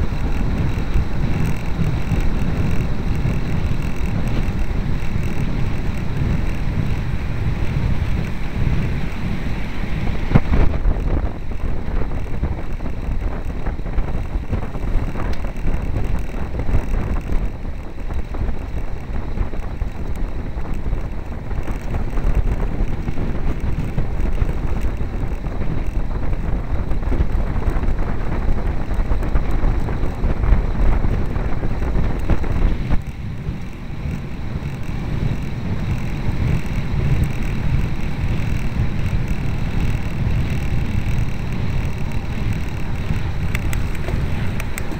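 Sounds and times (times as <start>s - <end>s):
wind buffeting microphone: 0.0s - 44.9s.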